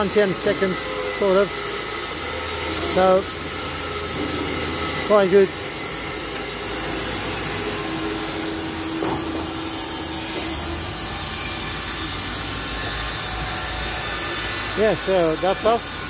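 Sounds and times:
band sawmill whirring: 0.0 - 16.0
steady hum: 0.0 - 16.0.

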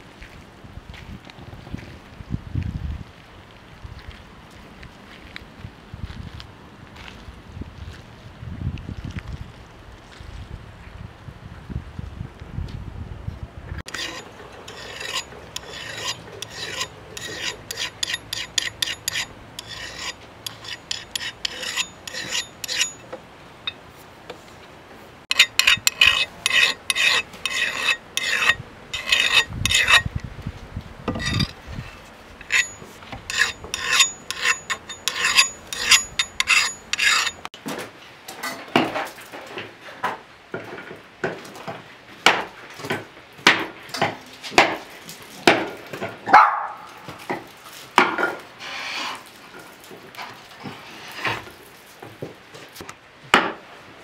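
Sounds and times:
file scraping steel blade: 13.9 - 23.8, 25.3 - 30.1, 31.1 - 37.5, 48.6 - 49.2.

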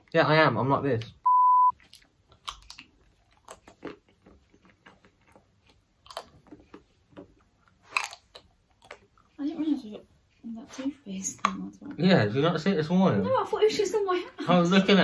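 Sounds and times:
person chewing chocolate: 1.7 - 10.4.

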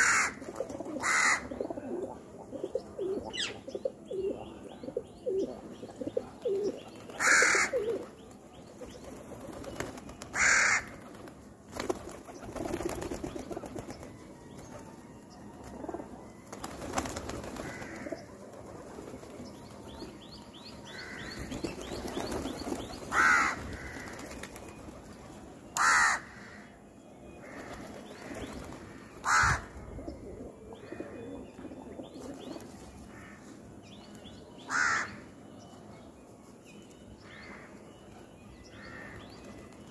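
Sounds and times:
pigeons cooing: 0.0 - 8.2, 27.6 - 32.7.

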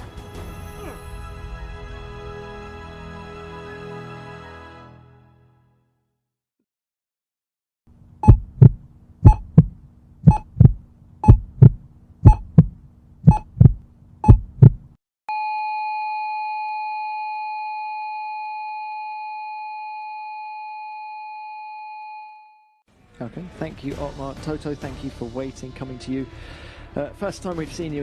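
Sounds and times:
heartbeat double thumps: 8.2 - 14.9
low hum: 8.2 - 14.9
heart monitor flatline beep: 8.2 - 21.2.

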